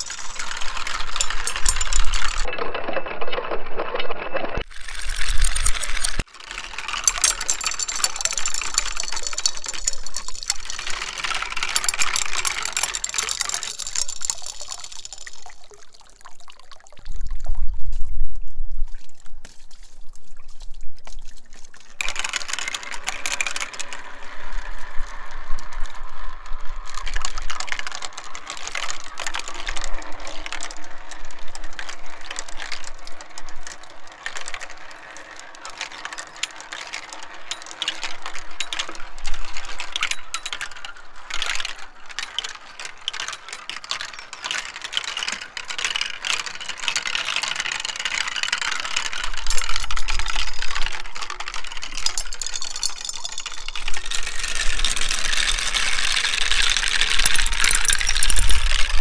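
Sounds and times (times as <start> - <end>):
marbles clicking on plastic track: 0.0 - 16.8, 21.7 - 59.0
water trickling: 13.7 - 18.0
wind rumbling on microphone: 17.1 - 21.4, 56.8 - 59.0.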